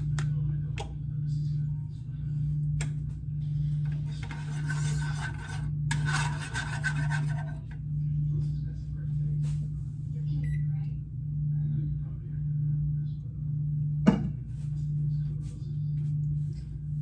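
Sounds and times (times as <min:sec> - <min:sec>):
steady low hum: 0:00.0 - 0:17.0
rasping rubbing noise: 0:04.2 - 0:07.6.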